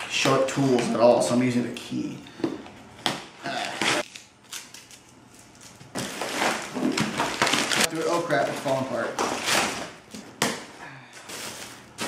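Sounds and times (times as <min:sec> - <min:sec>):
cardboard and tape ripping: 0:03.5 - 0:05.0, 0:05.6 - 0:10.0.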